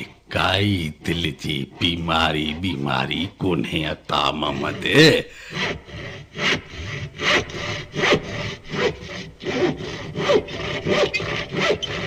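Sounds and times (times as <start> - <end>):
rasping saw strokes: 4.4 - 12.0.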